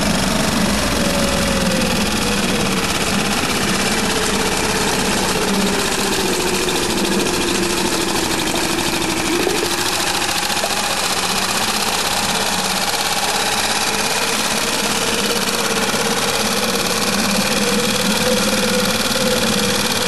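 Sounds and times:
outboard motor running: 0.0s - 20.0s
propeller churning water: 0.0s - 20.0s.

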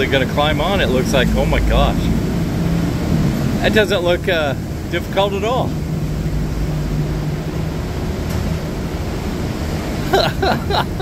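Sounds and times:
low engine hum: 0.0s - 11.0s
water rushing along ship hull: 0.0s - 11.0s
wind rushing: 0.6s - 5.0s.

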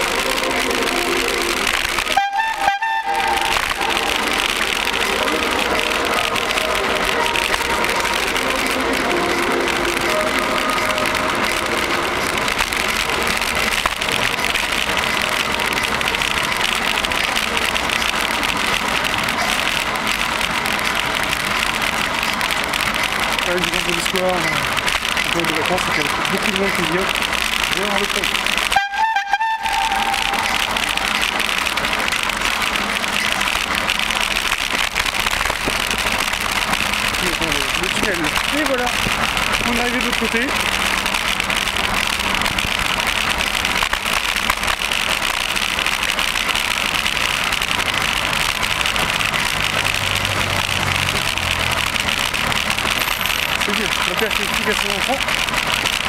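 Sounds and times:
bicycle tyres rolling on pavement: 0.0s - 56.0s
road and wind noise: 0.0s - 56.0s.

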